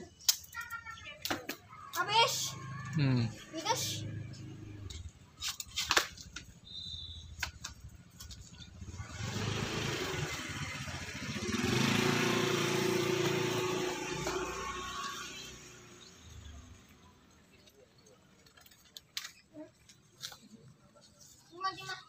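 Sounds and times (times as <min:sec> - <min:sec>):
small vehicle engine passing: 0:02.3 - 0:05.1, 0:08.6 - 0:17.2.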